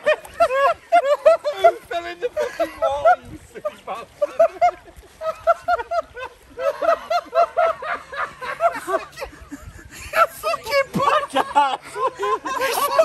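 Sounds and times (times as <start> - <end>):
man laughing heartily: 0.0 - 13.0.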